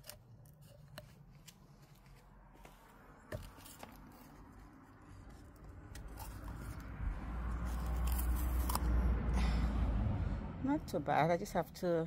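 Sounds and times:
coconut shell cracking: 0.0 - 1.7, 5.6 - 9.2
crackle and scraping of shell: 0.0 - 9.1.

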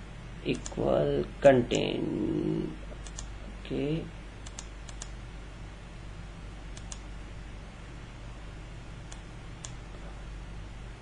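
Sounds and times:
low steady hum: 0.0 - 11.0
computer mouse clicks: 0.5 - 0.8, 3.0 - 3.3, 4.4 - 5.2, 6.7 - 7.1, 9.0 - 9.8.

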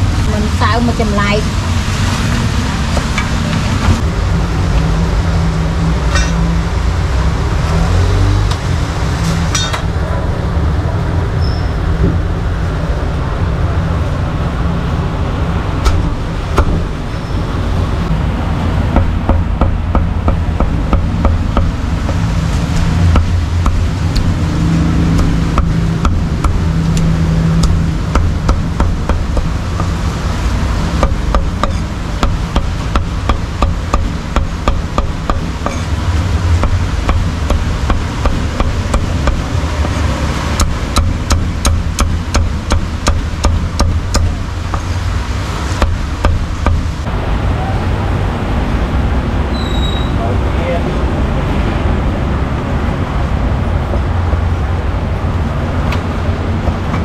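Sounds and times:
street traffic rumble: 0.0 - 57.0
cleaver chopping on wooden block: 25.1 - 30.0, 31.0 - 35.9, 36.6 - 40.0, 40.6 - 44.9.

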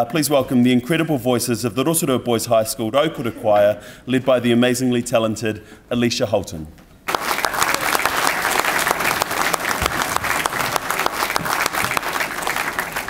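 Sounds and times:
audience applauding: 7.1 - 13.0.

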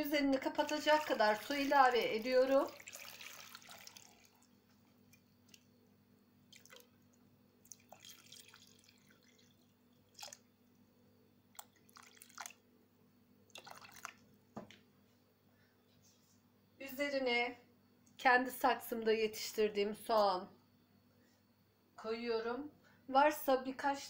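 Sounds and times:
water dripping into metal pot: 0.3 - 5.6, 6.5 - 10.5, 11.5 - 12.6.

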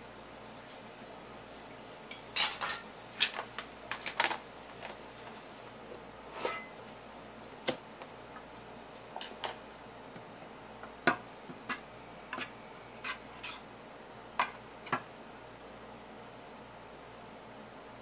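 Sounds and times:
faint steady hiss: 0.0 - 18.0
metal spoon scraping steel tray: 6.4 - 6.7, 12.4 - 13.6.

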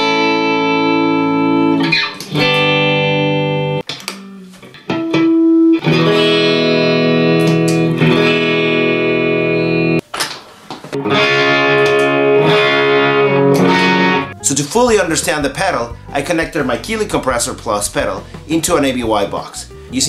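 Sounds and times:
electric guitar strumming chords: 0.0 - 10.0, 11.0 - 19.9
single guitar note ringing: 11.0 - 14.3.

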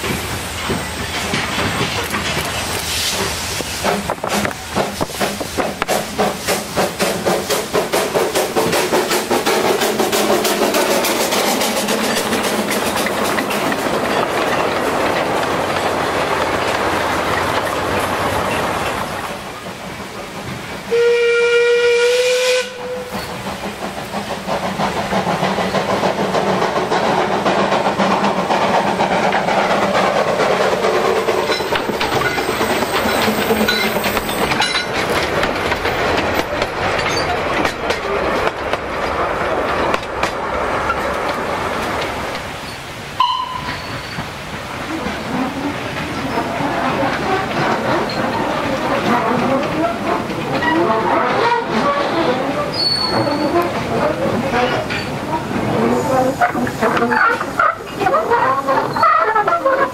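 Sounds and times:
steam locomotive chuffing: 0.0 - 59.9
train carriages rolling past: 0.0 - 59.9
steam whistle: 20.9 - 23.2.

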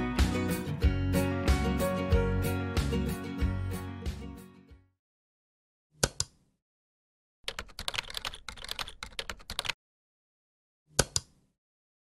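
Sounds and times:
keyboard typing: 7.4 - 9.8
mouse clicks: 11.0 - 11.4.

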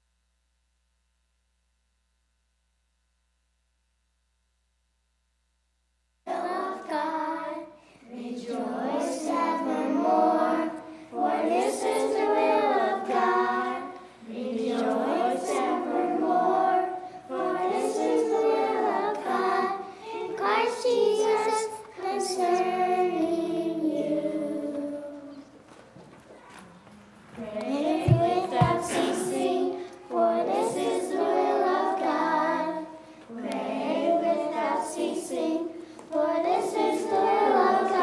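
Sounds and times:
children singing together: 6.3 - 25.6, 27.4 - 38.0.

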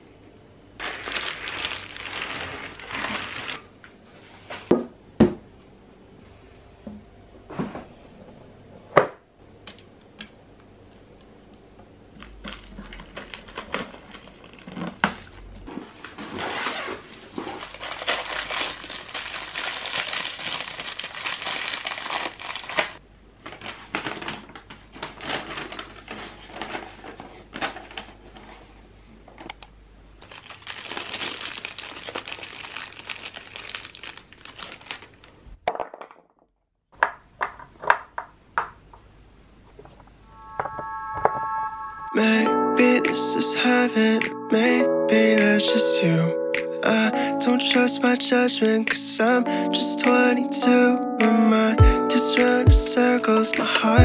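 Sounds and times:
packaging crinkling and rustling: 0.8 - 4.7, 12.1 - 28.8, 30.2 - 35.5.

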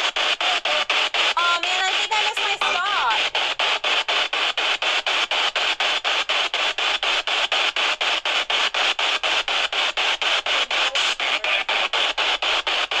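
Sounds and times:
pulsing radio hiss: 10.3 - 13.0.

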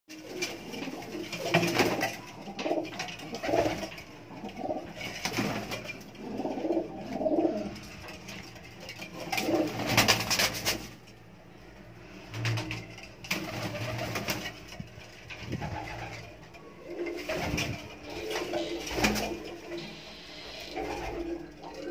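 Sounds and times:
pigeons cooing: 0.1 - 8.0, 9.0 - 10.9, 15.4 - 21.9.

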